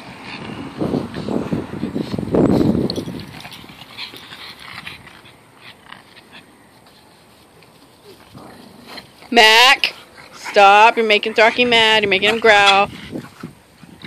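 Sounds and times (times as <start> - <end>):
faint scuffling: 5.9 - 12.6.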